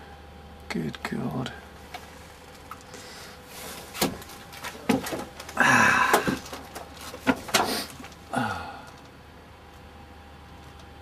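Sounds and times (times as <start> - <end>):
rustling handling noise: 1.8 - 8.3.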